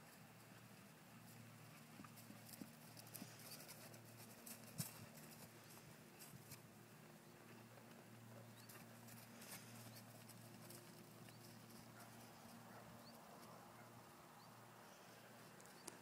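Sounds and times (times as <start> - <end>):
hoofbeats on grass: 1.3 - 6.6.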